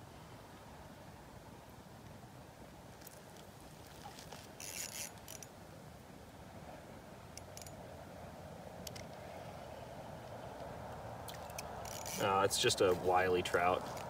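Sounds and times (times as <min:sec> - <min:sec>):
fishing rod scraping rustle: 0:03.0 - 0:05.5, 0:11.3 - 0:14.0
fishing reel light clicks: 0:08.8 - 0:09.2.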